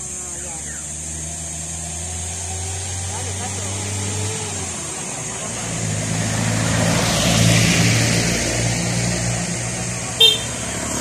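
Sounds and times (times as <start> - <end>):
motor vehicle engine: 0.0 - 11.0.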